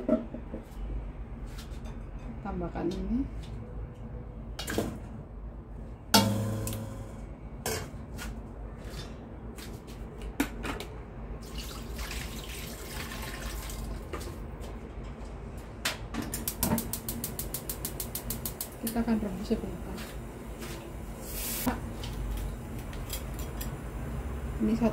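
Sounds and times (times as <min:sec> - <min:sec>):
loud clank in metal wok: 0:06.2 - 0:08.0
water pouring into wok: 0:11.4 - 0:14.1.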